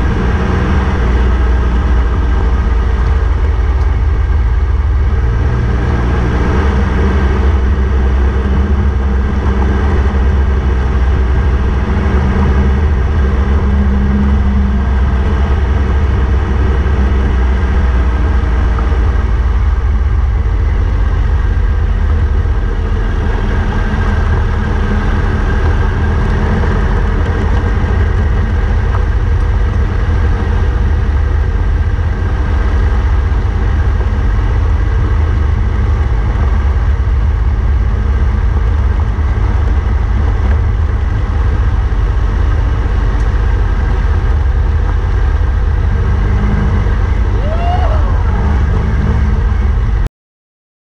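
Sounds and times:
motorcycle engine running: 0:00.0 - 0:50.1
road and wind noise: 0:00.0 - 0:50.1.

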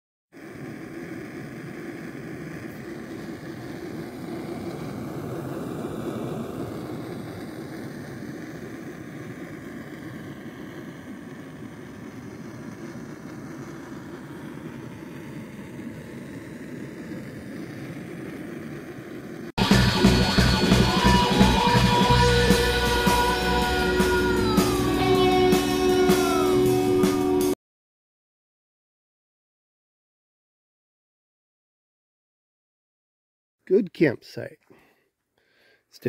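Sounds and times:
gas stove burning: 0:00.4 - 0:26.5.

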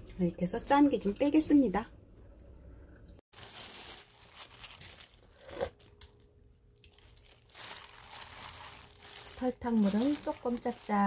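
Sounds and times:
plastic glove crinkling: 0:03.3 - 0:11.0.

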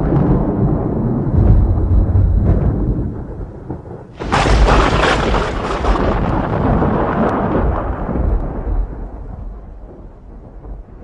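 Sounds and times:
thunder rumbling: 0:00.0 - 0:11.0.

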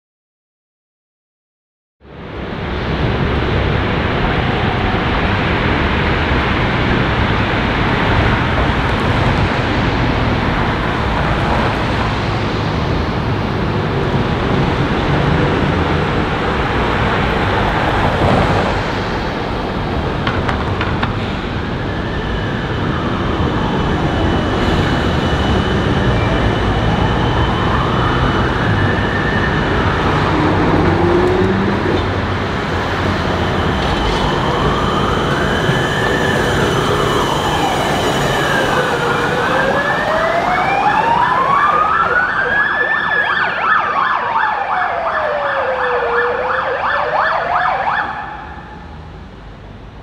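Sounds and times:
tram rumbling along track: 0:02.0 - 0:43.8, 0:47.9 - 0:50.0
siren wailing: 0:21.6 - 0:49.0.

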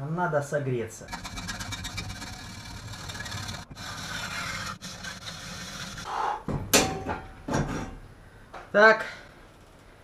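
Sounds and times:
hacksaw cutting metal pipe: 0:01.1 - 0:06.1.

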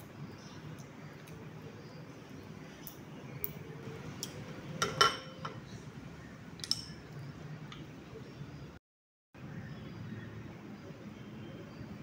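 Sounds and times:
glass bowls clinking: 0:04.8 - 0:05.6.

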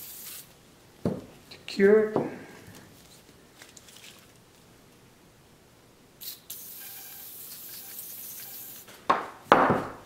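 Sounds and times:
aerosol can spraying: 0:00.0 - 0:00.5, 0:06.2 - 0:09.0.

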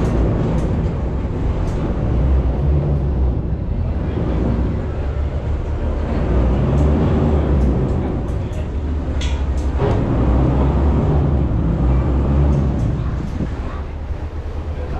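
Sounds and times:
boat engine rumble: 0:00.0 - 0:14.9
water noise: 0:00.0 - 0:14.9
light clicks and rattles: 0:06.5 - 0:10.2, 0:12.3 - 0:13.9
wind noise: 0:09.8 - 0:14.3.

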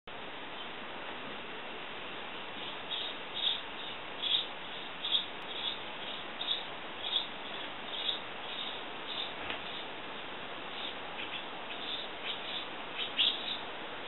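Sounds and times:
background hiss: 0:00.1 - 0:14.0
sparrow chirping: 0:02.6 - 0:09.9, 0:10.7 - 0:13.7.

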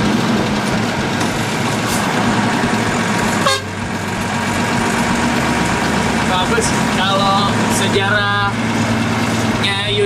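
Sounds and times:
diesel truck engine running: 0:00.0 - 0:10.0
horn toot: 0:03.4 - 0:03.7.

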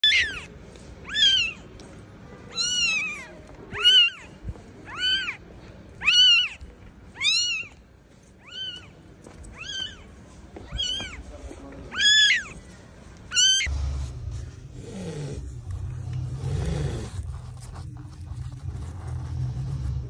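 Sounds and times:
kitten mewing: 0:00.0 - 0:01.6, 0:02.5 - 0:04.3, 0:04.9 - 0:05.4, 0:06.0 - 0:06.6, 0:07.2 - 0:07.7, 0:10.7 - 0:11.2, 0:11.9 - 0:12.6.

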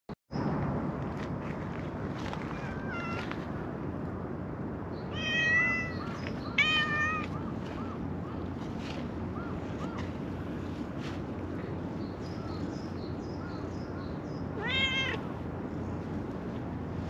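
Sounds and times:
cat meowing: 0:02.6 - 0:03.3, 0:05.1 - 0:06.0, 0:06.6 - 0:07.4, 0:14.6 - 0:15.3.

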